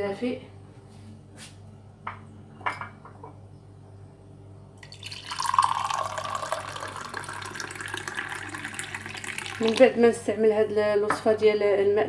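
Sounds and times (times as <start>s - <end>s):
water pouring into glass mug: 4.8s - 10.0s.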